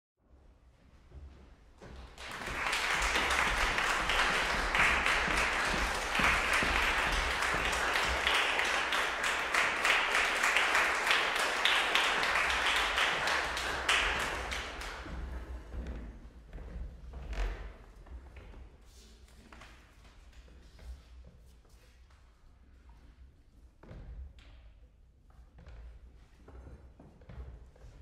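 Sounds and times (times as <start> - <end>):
audience applauding: 2.0 - 15.6.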